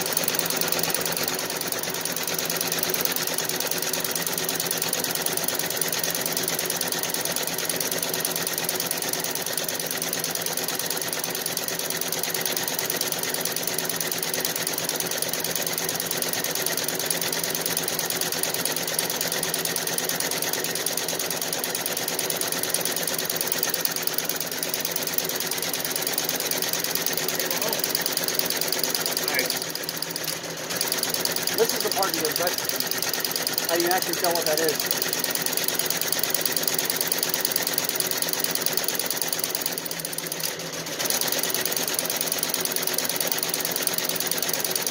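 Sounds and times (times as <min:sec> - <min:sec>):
embroidery machine stitching: 0:00.0 - 0:44.9.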